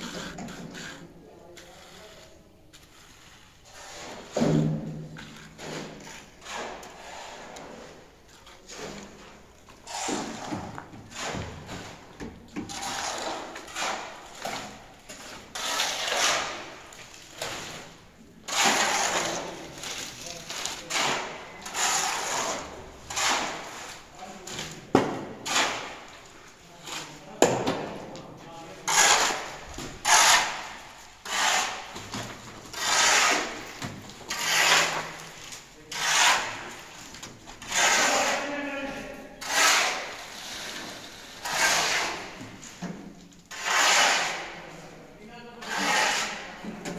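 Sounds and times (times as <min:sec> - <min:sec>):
shovel scraping wet concrete: 0:00.0 - 0:27.4, 0:28.7 - 0:42.9, 0:43.5 - 0:44.9, 0:45.6 - 0:46.9
shovel scraping through gravel: 0:34.3 - 0:35.2.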